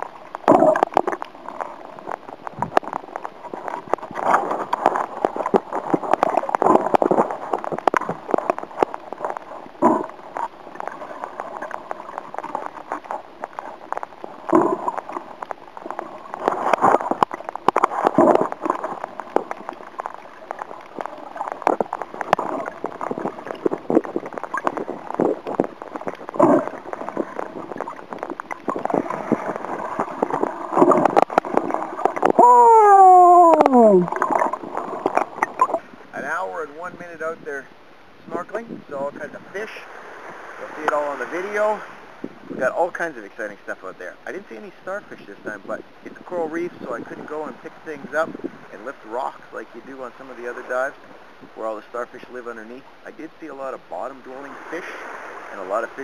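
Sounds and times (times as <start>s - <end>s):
small underwater knocks: 0.0s - 32.4s
underwater sloshing and gurgling: 0.0s - 56.0s.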